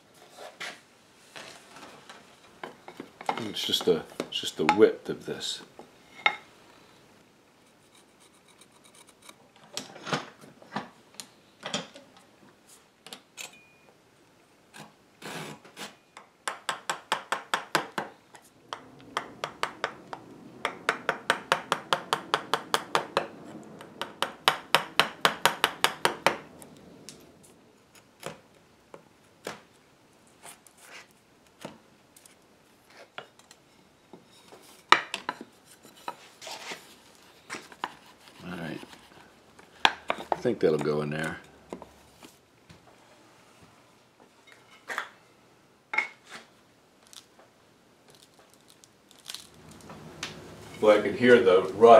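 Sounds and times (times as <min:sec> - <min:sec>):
hand tool scraping wood: 0:14.8 - 0:16.0, 0:35.6 - 0:41.0.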